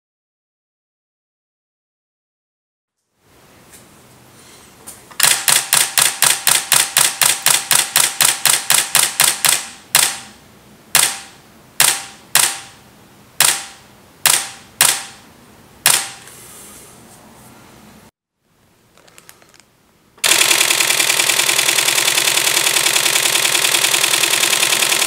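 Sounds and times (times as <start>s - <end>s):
camera shutter firing: 5.2s - 10.4s, 11.0s - 12.8s, 13.4s - 15.2s, 15.8s - 16.2s, 20.2s - 25.0s.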